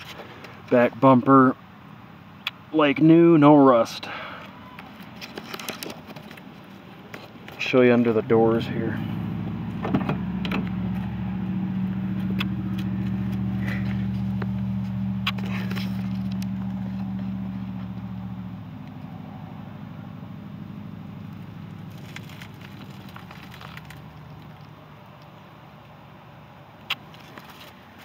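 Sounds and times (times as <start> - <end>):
low mechanical hum: 3.6 - 28.0
handling clicks and rustles: 4.4 - 9.0, 11.8 - 18.1, 21.2 - 25.4, 26.8 - 28.0.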